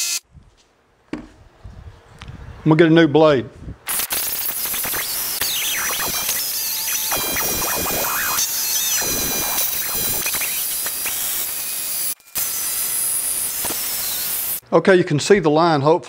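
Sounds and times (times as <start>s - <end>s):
reciprocating saw cutting wood: 3.9s - 14.6s.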